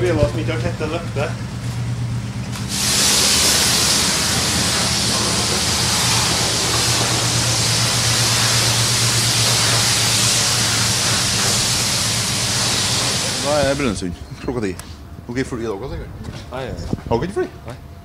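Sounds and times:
pressure washer spraying water: 2.5 - 14.0.

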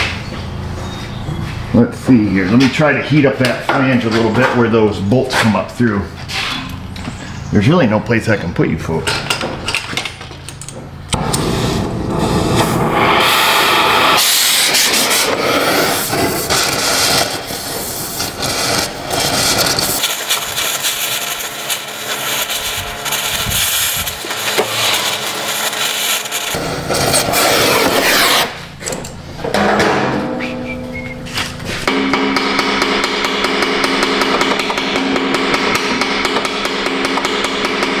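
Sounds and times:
gas torch flame hissing: 11.1 - 27.8.

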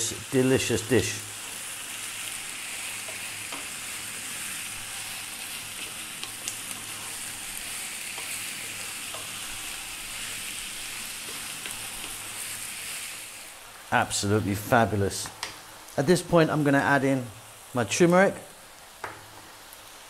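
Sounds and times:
meat and onions sizzling: 0.0 - 20.0
wooden spatula stirring: 1.3 - 13.1.

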